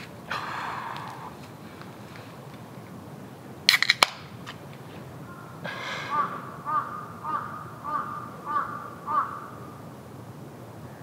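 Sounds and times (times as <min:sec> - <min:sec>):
can snapping open: 0:03.7 - 0:04.2.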